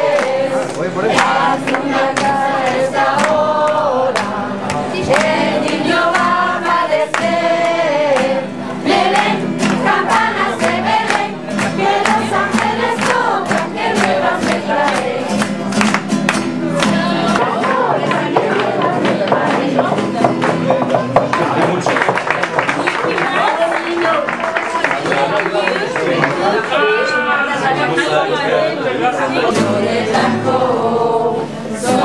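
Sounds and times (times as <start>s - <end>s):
group singing a carol: 0.0s - 21.2s, 26.8s - 32.0s
sharp percussive taps: 18.4s - 22.3s.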